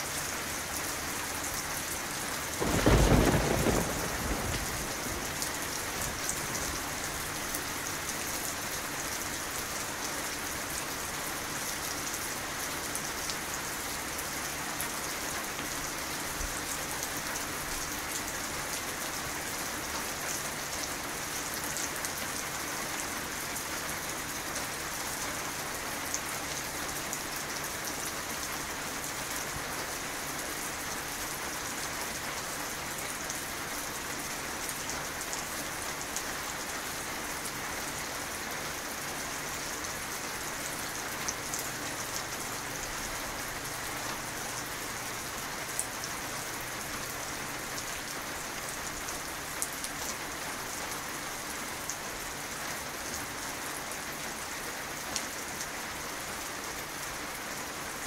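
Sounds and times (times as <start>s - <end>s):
steady rain falling: 0.0s - 58.0s
thunder rumble: 2.6s - 6.9s.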